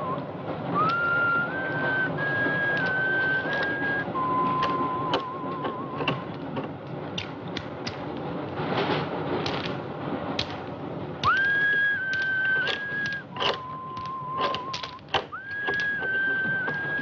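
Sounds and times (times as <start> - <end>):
person whistling: 0.0 - 0.2, 0.8 - 6.3, 11.2 - 17.0
sharp clicks and knocks: 2.5 - 9.8, 10.4 - 17.0.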